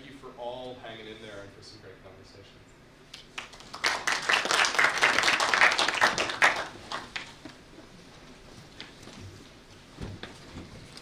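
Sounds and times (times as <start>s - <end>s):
audience applauding: 3.4s - 7.4s.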